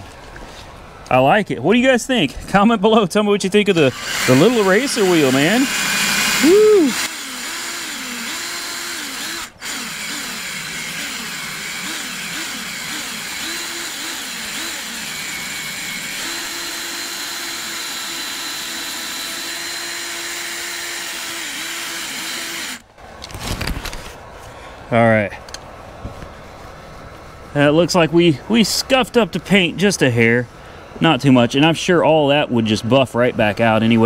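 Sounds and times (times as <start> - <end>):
power drill motor whining: 3.7 - 22.9.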